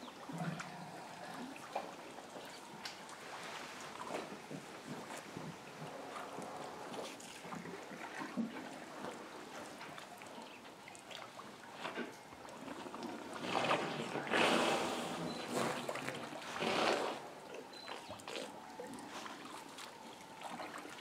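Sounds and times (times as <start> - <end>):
elephants drinking: 0.2 - 21.0
water splashing and pouring: 10.9 - 17.5, 18.1 - 21.0.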